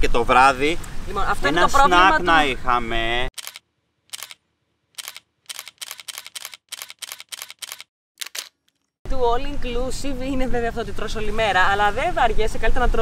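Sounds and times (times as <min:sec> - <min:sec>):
camera shutter clicking: 0:03.4 - 0:04.4, 0:05.0 - 0:08.8.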